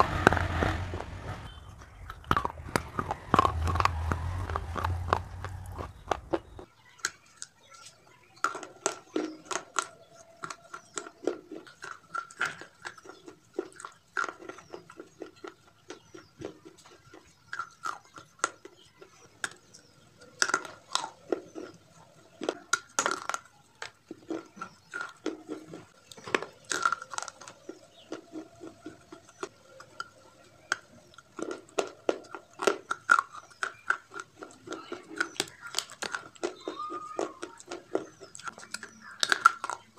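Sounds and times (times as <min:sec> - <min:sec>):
low rumble: 0:00.0 - 0:06.6
crunching close to the mouth: 0:00.0 - 0:39.9
quiet chewing: 0:00.0 - 0:39.9.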